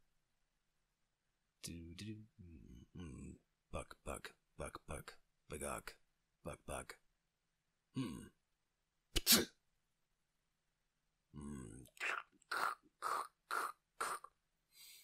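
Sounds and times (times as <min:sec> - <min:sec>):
man grunting: 0:08.0 - 0:08.3, 0:11.4 - 0:11.9.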